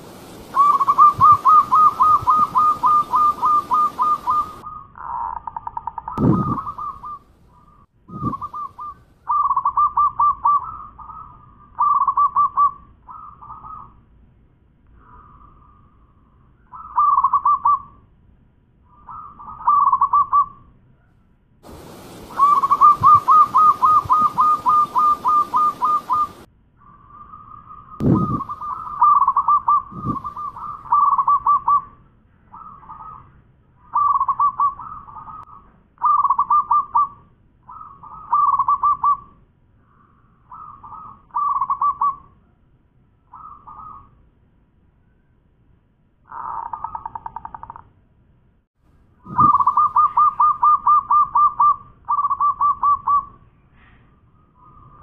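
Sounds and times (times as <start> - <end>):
hiss: 0.0 - 1.5, 21.6 - 26.4
dove cooing: 0.0 - 7.2, 8.1 - 13.9, 19.1 - 20.5, 21.7 - 26.5, 28.0 - 31.9, 33.9 - 35.4, 36.0 - 37.1, 49.3 - 53.3.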